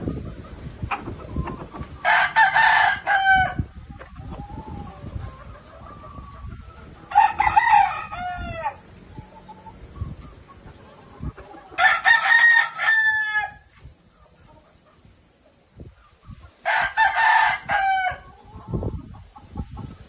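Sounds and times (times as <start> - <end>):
rooster crowing: 2.0 - 3.6, 7.1 - 8.8, 11.8 - 13.6, 16.7 - 18.2.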